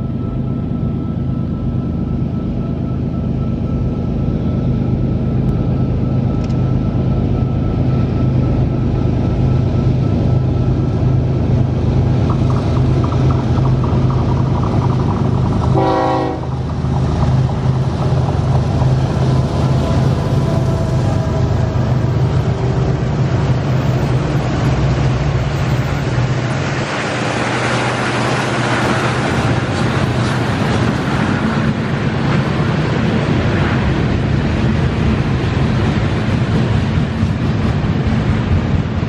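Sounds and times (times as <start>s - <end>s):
locomotive engine drone: 0.0s - 39.0s
train horn blast: 15.7s - 16.6s.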